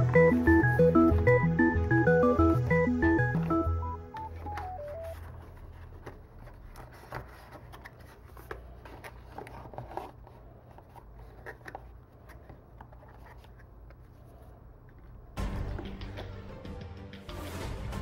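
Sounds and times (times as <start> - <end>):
cardboard and paper handling: 4.2 - 15.1.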